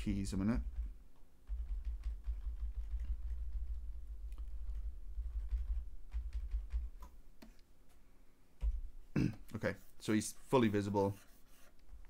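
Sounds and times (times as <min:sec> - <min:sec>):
keyboard keys tapped rapidly: 0:00.0 - 0:07.5.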